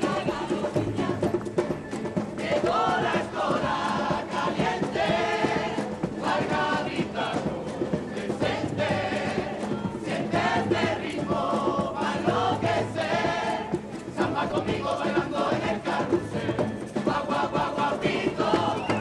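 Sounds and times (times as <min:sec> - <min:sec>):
choir singing in chorus: 0:00.0 - 0:19.0.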